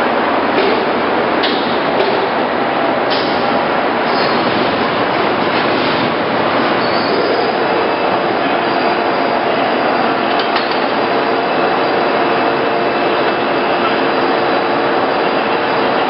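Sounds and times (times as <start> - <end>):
lathe running: 3.6 - 16.0.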